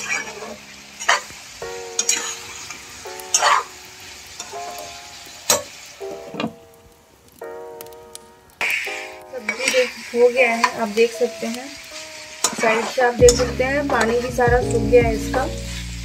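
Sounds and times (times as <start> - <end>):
metal spatula scraping a pan: 0.0 - 1.3, 2.0 - 3.7, 8.6 - 11.2, 11.9 - 14.3
vegetables sizzling: 0.0 - 6.8, 7.4 - 16.0.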